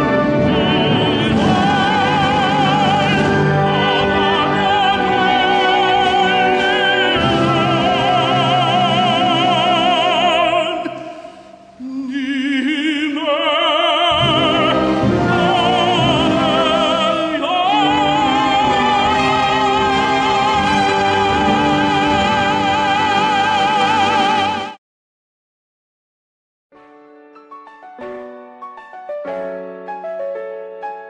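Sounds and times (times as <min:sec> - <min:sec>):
man singing operatically: 0:00.0 - 0:11.0, 0:11.8 - 0:24.6.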